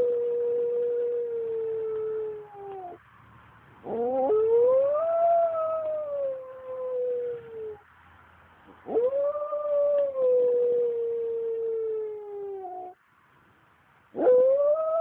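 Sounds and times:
dog howling: 0.0s - 3.0s, 3.9s - 7.8s, 8.8s - 13.0s, 14.2s - 15.0s.

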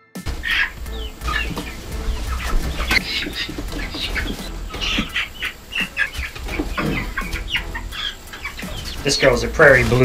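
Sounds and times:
hens squawking: 0.3s - 10.0s
knocks and wing flaps: 0.3s - 10.0s.

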